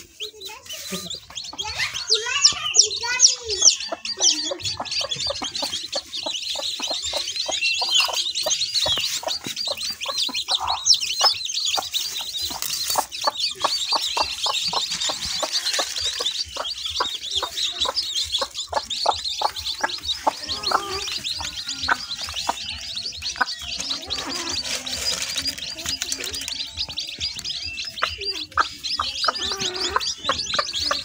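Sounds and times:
chicks peeping: 0.0s - 31.0s
hen clucking: 0.0s - 31.0s.

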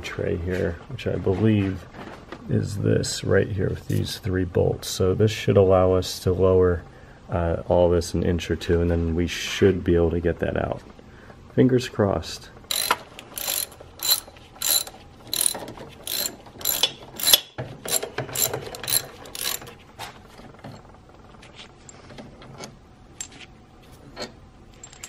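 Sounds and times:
socket ratchet clicking: 12.7s - 19.7s.

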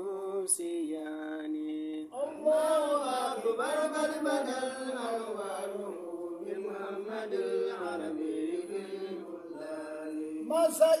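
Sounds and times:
man chanting melodically: 9.6s - 11.0s.

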